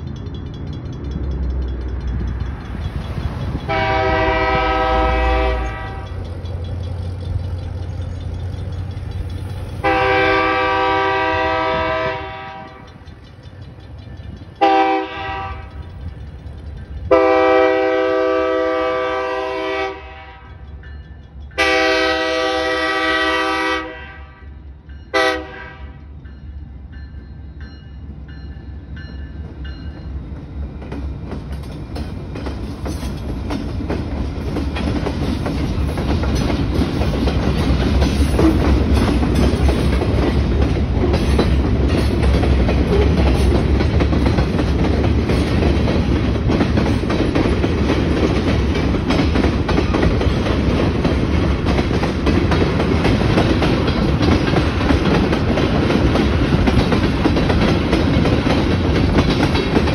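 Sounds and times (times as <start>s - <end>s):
low rumble of locomotive: 0.0s - 59.9s
locomotive air horn blasts: 3.7s - 6.2s, 9.8s - 12.9s, 14.6s - 15.8s, 17.1s - 20.6s, 21.6s - 26.1s.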